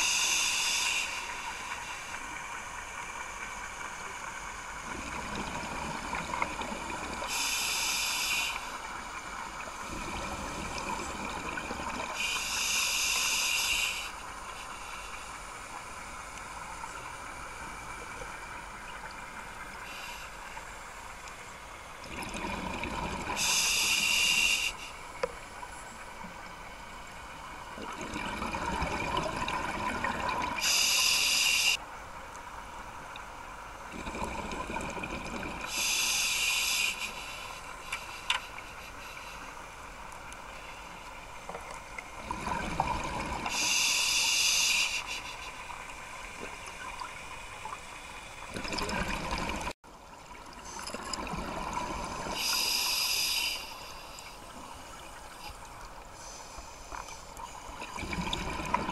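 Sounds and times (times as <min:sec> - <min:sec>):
exhaled bubbles rumbling underwater: 0:04.7 - 0:07.3, 0:09.1 - 0:12.2, 0:22.0 - 0:23.5, 0:27.4 - 0:30.7, 0:33.9 - 0:35.8, 0:41.9 - 0:43.6, 0:45.9 - 0:52.5, 0:57.7 - 0:58.9.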